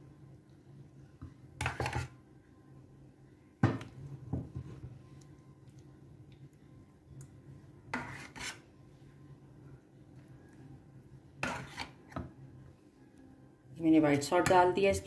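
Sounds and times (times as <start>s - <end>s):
faint low hum: 0.0s - 7.9s, 12.2s - 15.0s
metal spoon scraping baking dish: 1.6s - 2.2s, 7.9s - 8.7s, 11.4s - 12.2s.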